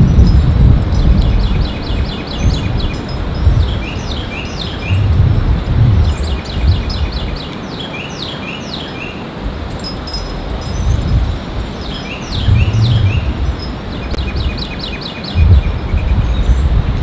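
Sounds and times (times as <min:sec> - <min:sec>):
songbird singing: 0:00.0 - 0:17.0
low rumble: 0:04.8 - 0:07.1, 0:12.3 - 0:13.7.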